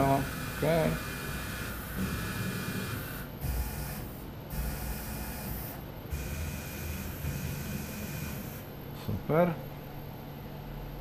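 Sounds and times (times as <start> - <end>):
stepper motors whining: 0.0 - 8.7.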